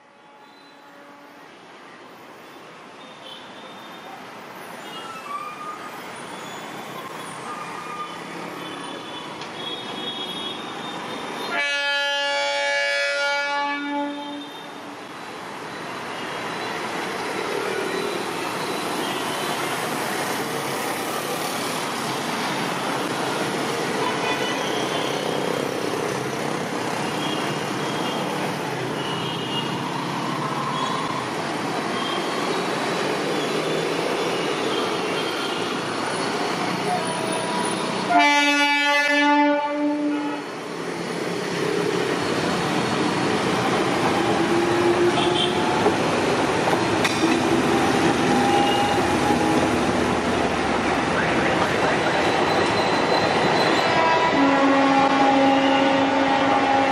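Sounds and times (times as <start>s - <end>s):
train horn: 0.0s - 1.5s, 11.4s - 14.7s, 38.1s - 40.5s, 53.9s - 56.9s
train running on rails: 0.0s - 56.9s.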